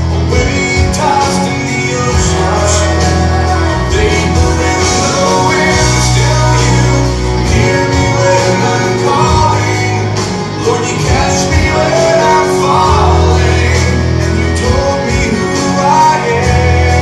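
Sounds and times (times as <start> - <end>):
song with band accompaniment: 0.0 - 17.0.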